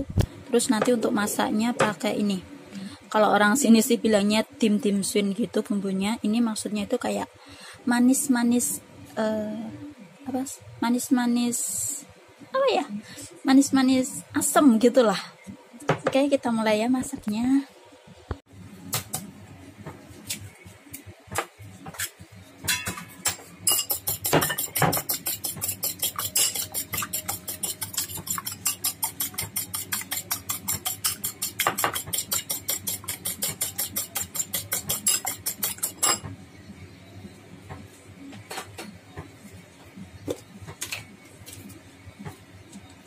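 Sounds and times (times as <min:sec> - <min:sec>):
fork clinking against bowl: 0:22.7 - 0:36.3.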